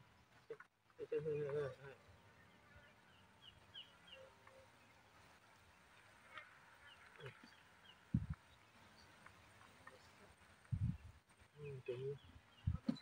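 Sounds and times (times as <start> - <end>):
faint bird chirps: 6.3 - 13.0.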